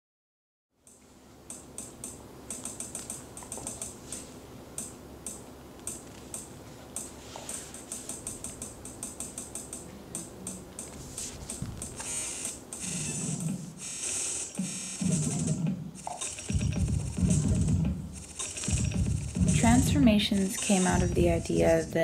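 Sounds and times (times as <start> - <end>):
faint low hum: 0.8 - 22.0
keyboard typing clicks: 0.9 - 7.2, 7.8 - 11.0.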